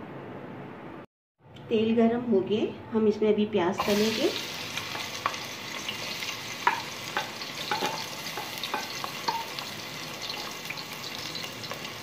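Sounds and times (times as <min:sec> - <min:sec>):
onions sizzling in hot oil: 0:03.8 - 0:12.0.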